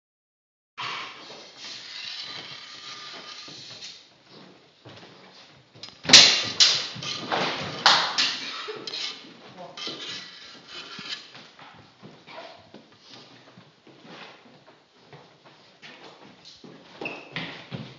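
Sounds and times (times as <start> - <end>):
sword blades clashing: 6.1 - 9.2.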